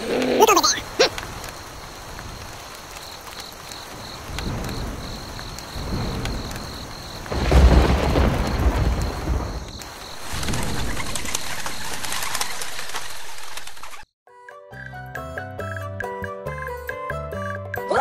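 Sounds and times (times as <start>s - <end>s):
steady rain: 0.0s - 14.0s
low thunder rumbles: 3.8s - 12.2s
loud thunderclap: 3.9s - 12.1s.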